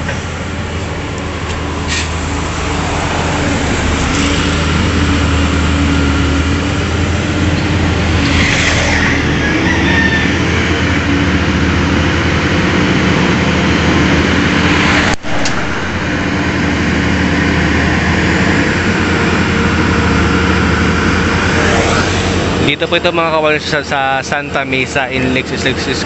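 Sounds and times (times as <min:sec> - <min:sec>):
construction machinery diesel engines: 0:00.0 - 0:26.0
passing road traffic: 0:00.0 - 0:26.0.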